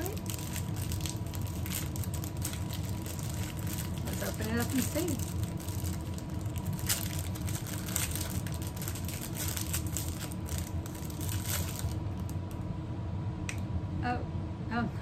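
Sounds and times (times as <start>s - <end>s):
plastic packaging crinkling and tearing: 0.0s - 12.6s
low hum: 0.0s - 15.0s.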